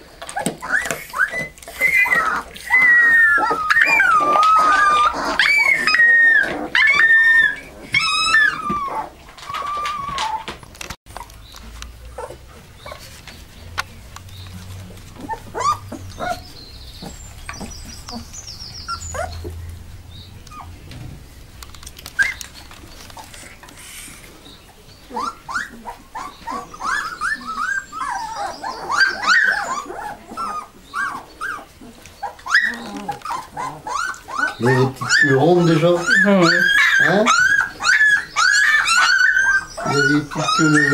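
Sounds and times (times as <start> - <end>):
puppies whimpering: 0.0 - 40.9.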